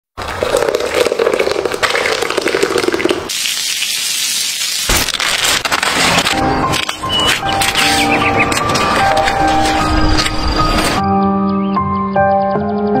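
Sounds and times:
batter pouring and spattering: 0.2 - 6.0.

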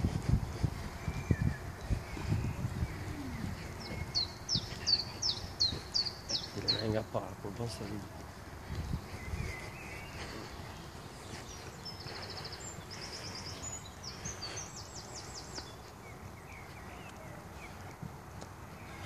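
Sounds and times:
outdoor background noise: 0.0 - 19.0
bird chirps: 0.6 - 17.9
songbird trilling: 1.0 - 8.2.

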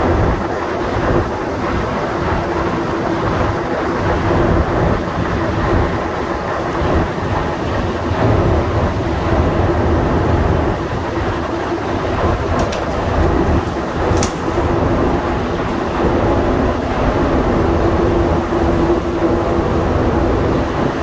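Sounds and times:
train rumbling through tunnel: 0.0 - 21.0
sharp clicks: 12.5 - 14.7.

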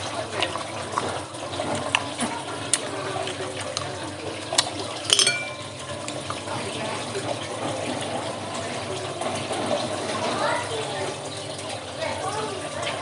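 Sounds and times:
wet slurping and chewing: 0.0 - 4.9
shells clinking: 5.1 - 5.6.

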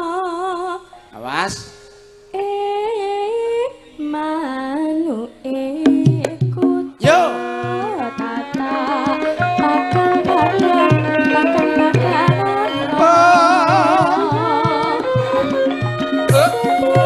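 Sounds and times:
woman singing into microphone: 0.0 - 1.0, 2.3 - 17.0
hand drum striking: 8.5 - 17.0
gamelan ensemble playing: 10.6 - 14.4.

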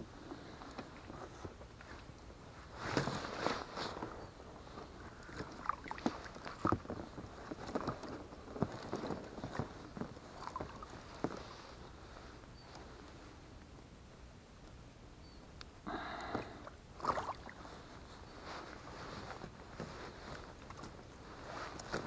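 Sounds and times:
water splashes: 5.4 - 6.6, 10.4 - 10.9, 16.4 - 17.6.

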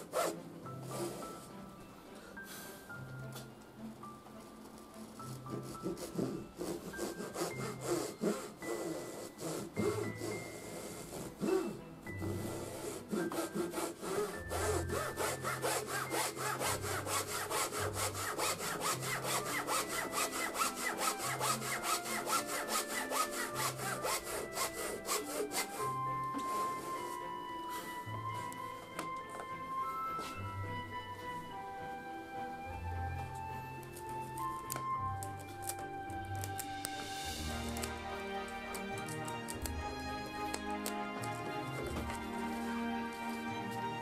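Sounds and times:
hand saw cutting wood: 0.0 - 1.5, 5.2 - 27.3, 36.4 - 42.8.

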